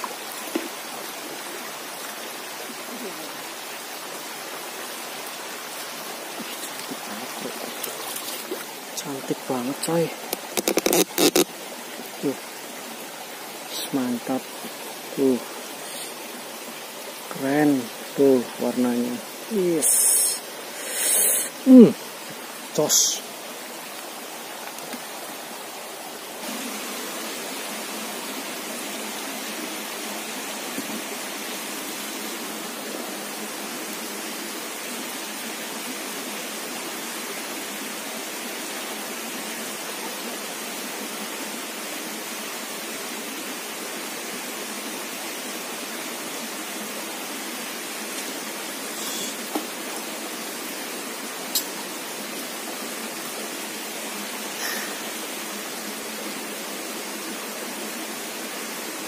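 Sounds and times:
stream running over rocks: 0.0s - 59.0s.

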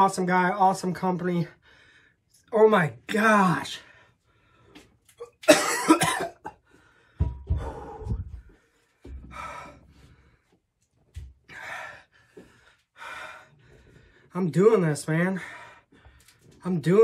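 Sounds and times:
man breathing heavily: 1.6s - 2.4s, 3.8s - 5.2s, 6.6s - 14.4s, 15.3s - 16.6s
man coughing: 5.2s - 6.6s.

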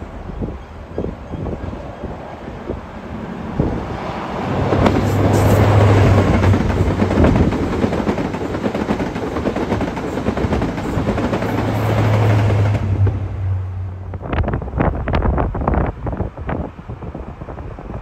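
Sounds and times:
train diesel engine droning: 0.0s - 8.6s.

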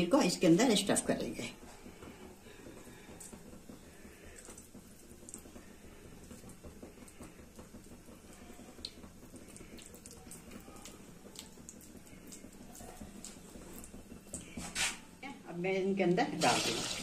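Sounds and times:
hands squelching soft paste: 2.8s - 15.1s.

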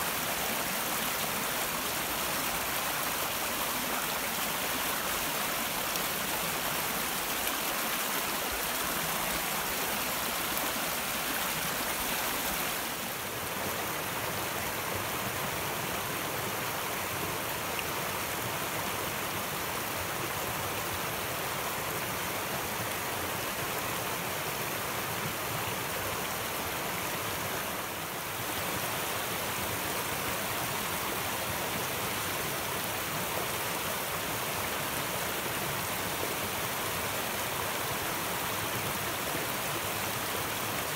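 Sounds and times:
stream rushing over stones: 0.0s - 40.9s.

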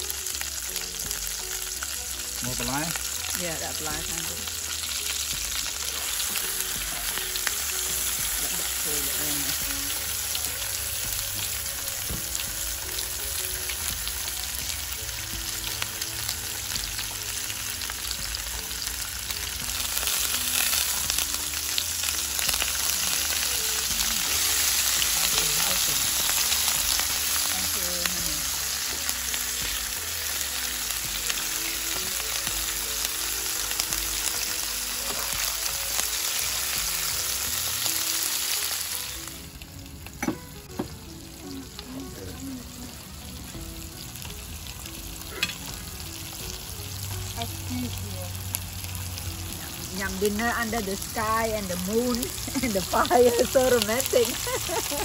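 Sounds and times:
food sizzling in a grill pan: 0.0s - 55.0s.

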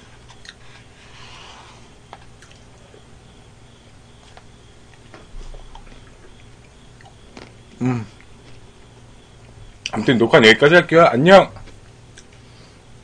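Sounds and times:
soft chewing: 0.2s - 1.4s, 2.1s - 3.1s, 4.1s - 10.0s, 11.6s - 12.6s.

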